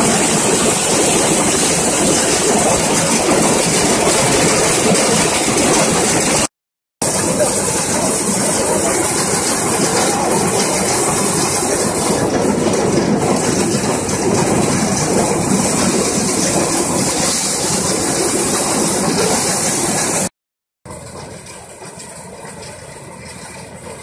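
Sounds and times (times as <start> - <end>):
thresher running under load: 0.0 - 20.3
hiss of threshing drum: 7.0 - 20.3.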